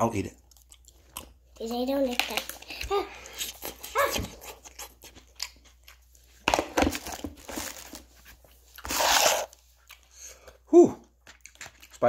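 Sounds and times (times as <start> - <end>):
man chewing noodles: 0.4 - 1.5, 3.1 - 6.4, 8.5 - 12.0.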